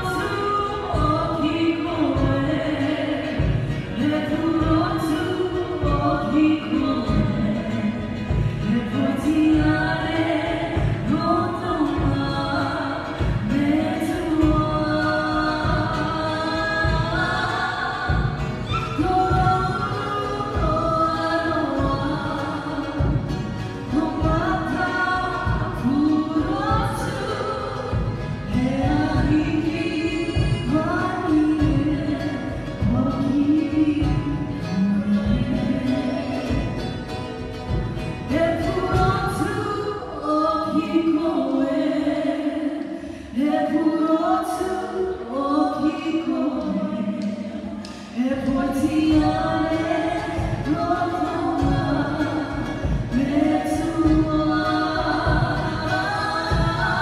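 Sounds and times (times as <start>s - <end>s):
group singing in harmony: 38.9s - 57.0s.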